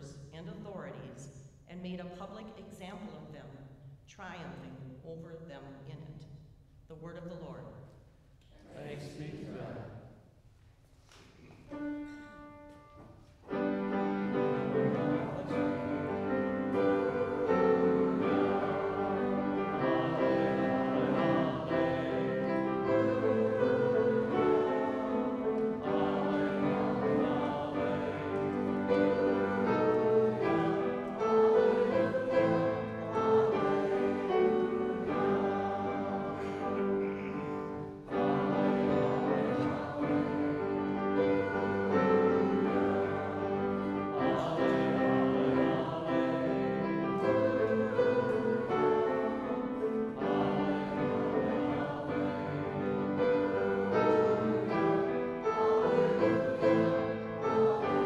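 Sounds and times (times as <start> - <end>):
voices singing: 8.6 - 10.0, 13.5 - 58.0
church music on keyboard: 11.7 - 58.0.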